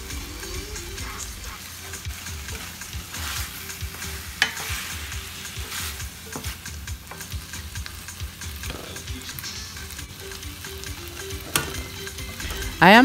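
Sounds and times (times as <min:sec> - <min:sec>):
food sizzling in skillet: 0:00.0 - 0:13.0
spoon scraping pan: 0:02.5 - 0:07.3
spoon knocking pan: 0:03.9 - 0:04.8.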